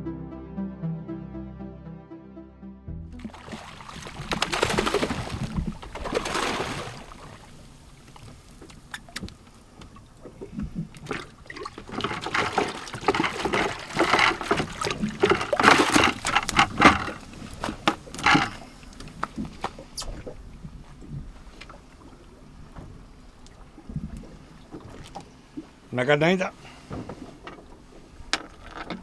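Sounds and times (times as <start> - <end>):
water splashing against hull: 3.2 - 29.0
knocks and rustles: 11.8 - 19.8.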